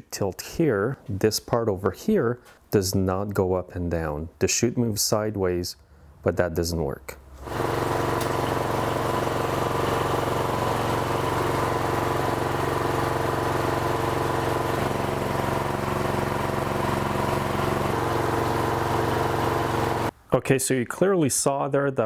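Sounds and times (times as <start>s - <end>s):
snowblower engine running: 7.4s - 20.1s.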